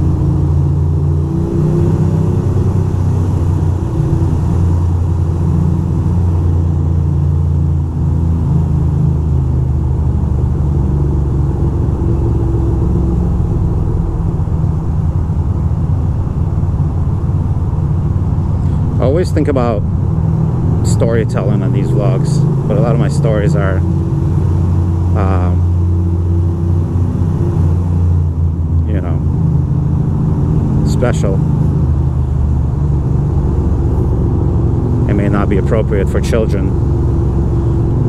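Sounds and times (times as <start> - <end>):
motorcycle engine running at low revs: 0.0 - 38.0.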